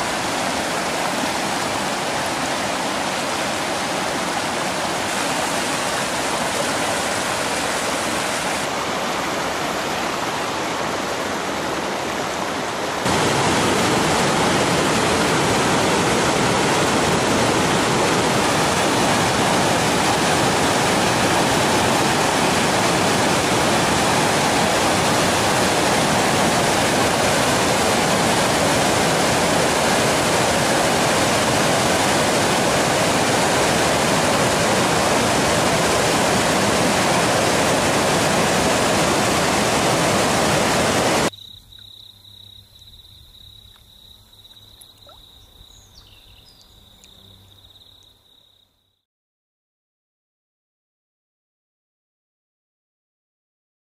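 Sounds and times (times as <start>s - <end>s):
rapids rushing over boulders: 0.0s - 41.3s.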